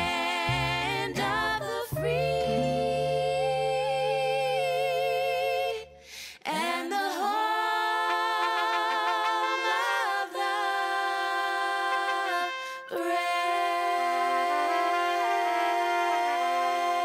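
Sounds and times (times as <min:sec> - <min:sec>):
women singing in harmony: 0:00.0 - 0:17.0
held music chord: 0:00.9 - 0:04.3.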